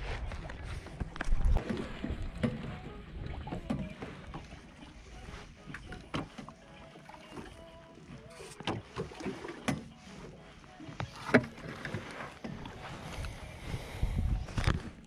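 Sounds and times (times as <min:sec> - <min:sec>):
water against boat hull: 0:00.0 - 0:15.0.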